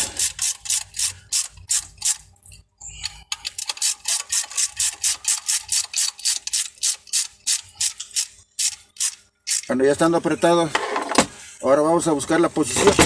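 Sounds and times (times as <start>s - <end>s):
ratchet wrench clicking: 0.0s - 2.2s, 3.0s - 9.7s.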